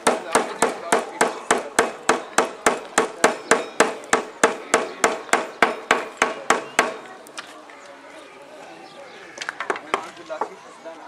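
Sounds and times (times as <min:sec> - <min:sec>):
hammer striking: 0:00.0 - 0:07.1.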